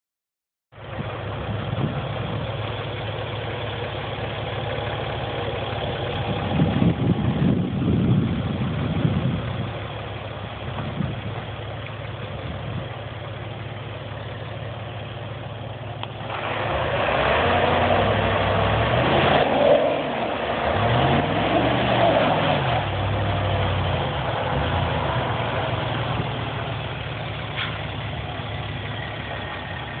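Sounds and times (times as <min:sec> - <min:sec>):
pickup engine revving: 0:16.0 - 0:30.0.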